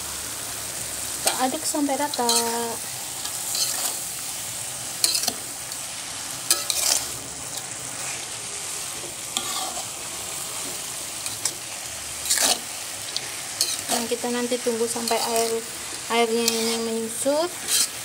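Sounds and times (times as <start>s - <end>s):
food sizzling in a wok: 0.0s - 18.0s
spatula scraping and knocking pan: 17.6s - 18.0s.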